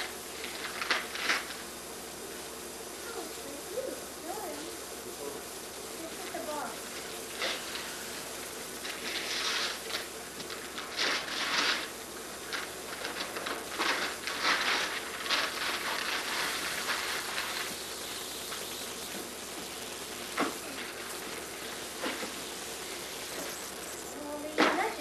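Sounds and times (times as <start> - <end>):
wrapping paper crinkling and tearing: 0.0 - 1.7, 6.4 - 23.6.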